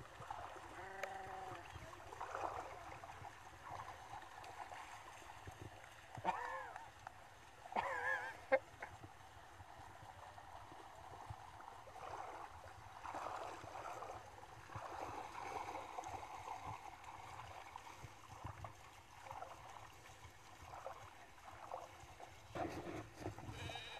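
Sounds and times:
hooves splashing in water: 0:00.0 - 0:23.9
sheep bleating: 0:00.8 - 0:01.6, 0:23.5 - 0:23.9.

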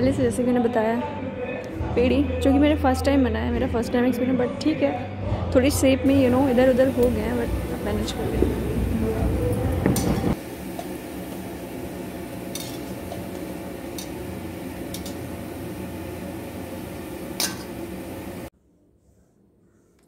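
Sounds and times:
oil sizzling: 0:06.1 - 0:18.5
skimmer clinking against pan: 0:12.5 - 0:15.4, 0:17.4 - 0:17.9.

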